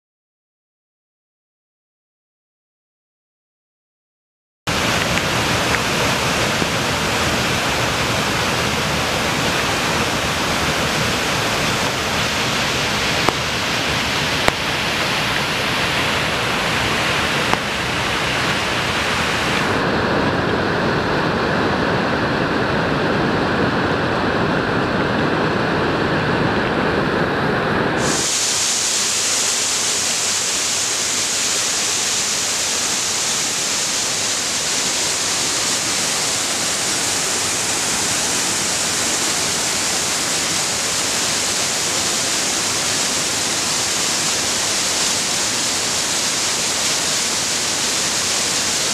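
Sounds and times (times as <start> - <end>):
creek rushing over boulders: 4.7 - 48.9.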